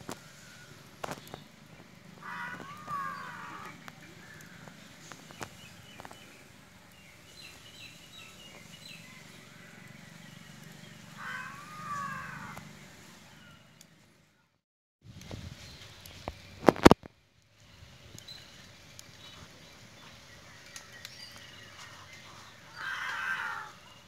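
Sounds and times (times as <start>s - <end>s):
birds calling: 0.1s - 13.8s, 17.7s - 24.0s.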